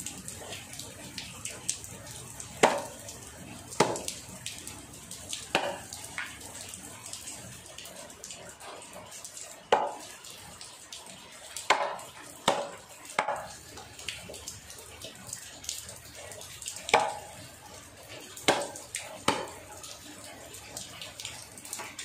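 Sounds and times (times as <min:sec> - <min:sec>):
water splashing in sink: 0:00.7 - 0:06.5, 0:08.6 - 0:22.0
sharp knocks in sink: 0:11.7 - 0:13.5, 0:17.0 - 0:17.2, 0:18.5 - 0:19.5.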